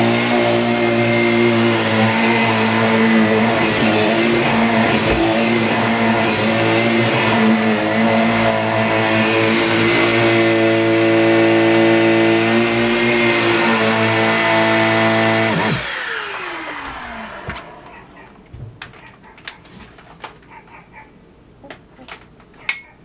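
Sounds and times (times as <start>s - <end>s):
vacuum cleaner running: 0.0s - 18.4s.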